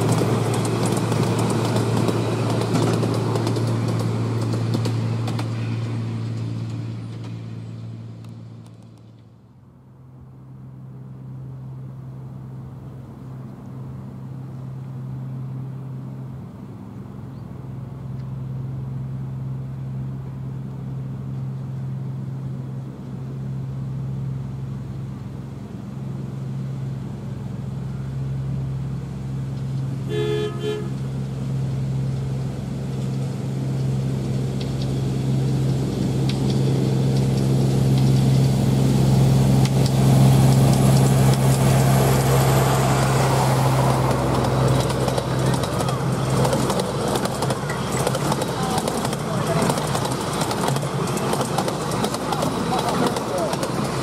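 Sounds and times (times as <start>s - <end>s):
locomotive engine running: 0.0s - 54.0s
locomotive horn toot: 30.0s - 31.1s.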